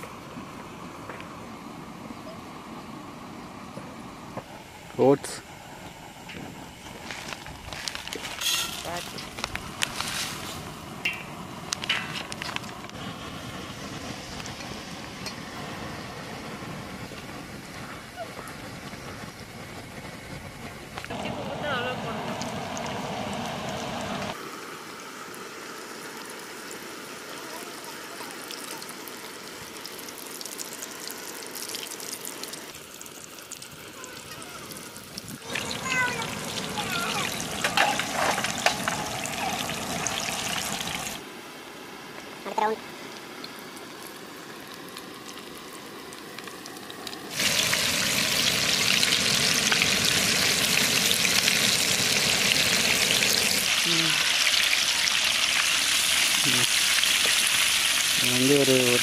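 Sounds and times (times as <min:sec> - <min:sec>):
food deep-frying in hot oil: 0:21.0 - 0:41.2, 0:42.6 - 0:59.0.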